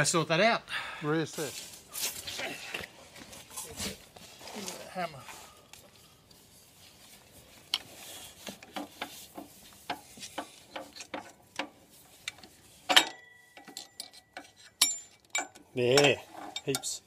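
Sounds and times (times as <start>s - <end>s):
metal clank: 12.9s - 17.0s.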